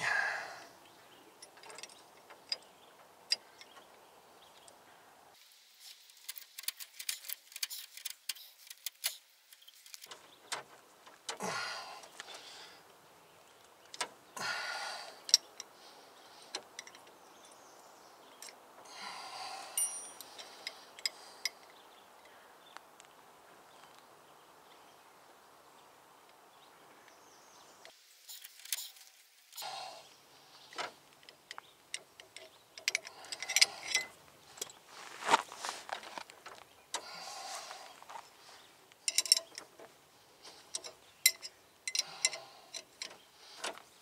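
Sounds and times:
metallic tool clicks and clinks: 0:19.8 - 0:20.3
rustling scrapes: 0:34.6 - 0:36.6.

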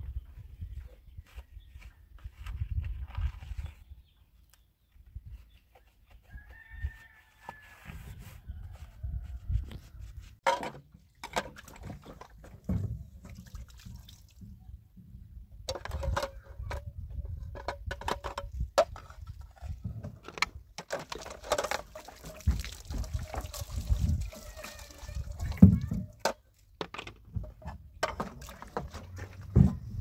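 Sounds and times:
plastic dishes clattering: 0:10.4 - 0:12.9, 0:15.7 - 0:23.6, 0:25.6 - 0:29.8
water splashing and dripping: 0:11.0 - 0:14.6, 0:20.8 - 0:26.2, 0:28.1 - 0:29.3.

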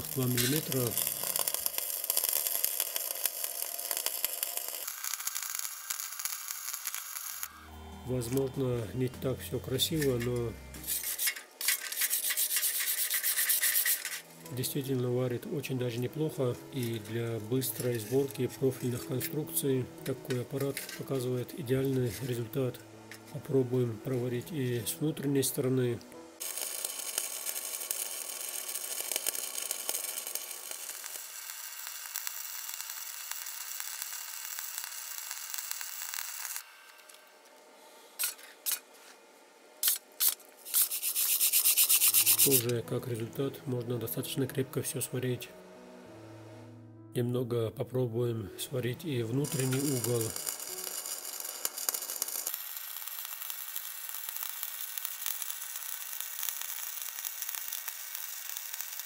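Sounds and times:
welding arc crackling: 0:00.0 - 0:24.9, 0:26.4 - 0:37.6, 0:38.2 - 0:38.9, 0:39.8 - 0:42.8, 0:49.1 - 0:59.0
short scraping strokes: 0:10.0 - 0:14.3, 0:39.8 - 0:42.7.

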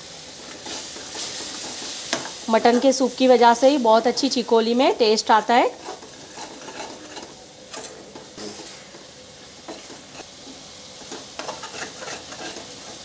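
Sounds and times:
masala sizzling in a pan: 0:00.0 - 0:13.0
spoon scraping metal pan: 0:05.7 - 0:09.0, 0:09.7 - 0:10.3, 0:11.0 - 0:13.0.

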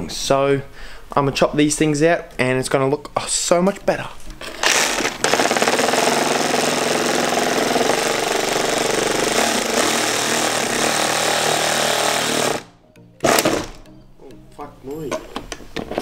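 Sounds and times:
reciprocating saw cutting plastic: 0:04.5 - 0:13.8.

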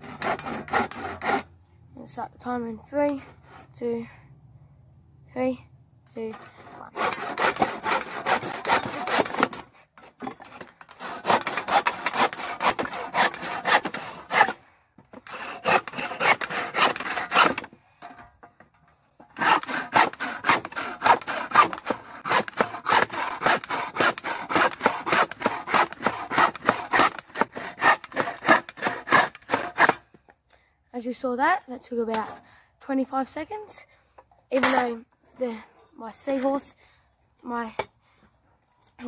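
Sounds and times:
hand saw cutting wood: 0:00.0 - 0:01.5, 0:03.0 - 0:03.9, 0:06.2 - 0:18.2, 0:19.2 - 0:30.1, 0:32.1 - 0:32.4, 0:34.5 - 0:35.0.

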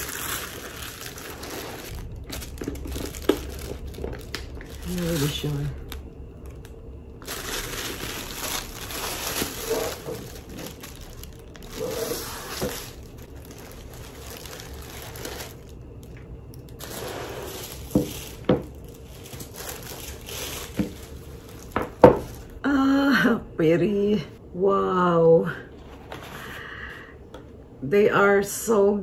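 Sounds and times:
tissue paper rustling: 0:00.0 - 0:05.9, 0:07.2 - 0:15.8, 0:16.8 - 0:22.6.

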